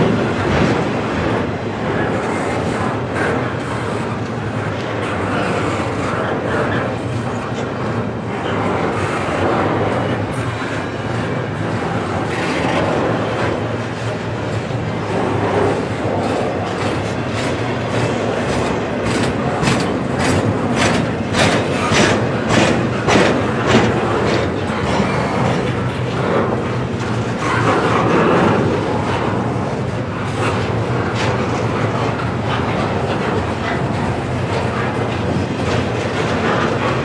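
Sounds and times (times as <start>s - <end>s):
freight train rumbling: 0.0s - 37.0s
steel wheels clicking over rail joints: 0.0s - 37.0s.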